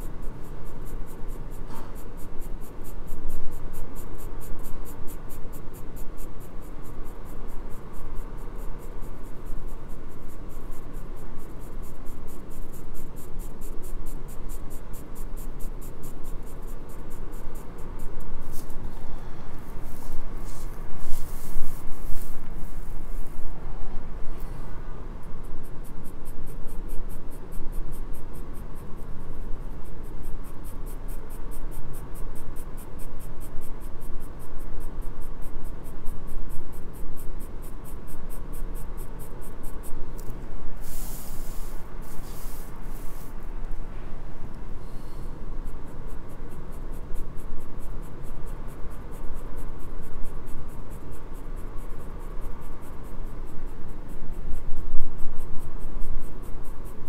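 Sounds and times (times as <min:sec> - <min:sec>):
pencil scratching on paper: 0:00.0 - 0:23.7, 0:36.8 - 0:43.5.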